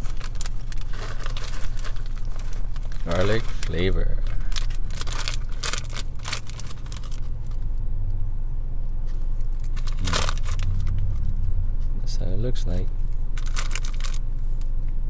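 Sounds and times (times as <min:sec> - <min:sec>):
plastic snack bag crinkling: 0:00.0 - 0:07.6, 0:09.6 - 0:11.0, 0:13.4 - 0:14.2
low hum inside a car: 0:00.0 - 0:15.0.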